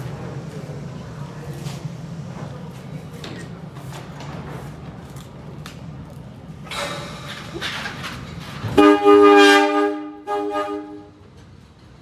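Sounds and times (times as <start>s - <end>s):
train horn blast: 8.7s - 11.2s.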